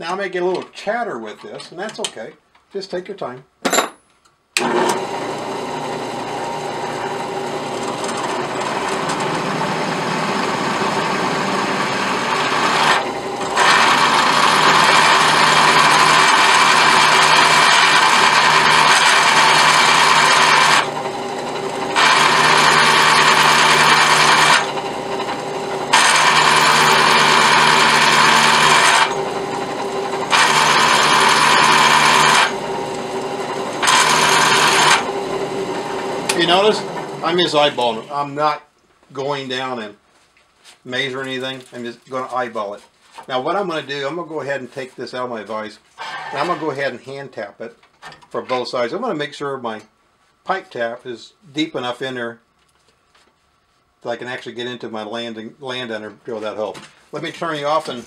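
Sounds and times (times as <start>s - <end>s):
drill bit cutting metal: 4.6s - 38.1s
drill press motor hum: 4.6s - 38.1s.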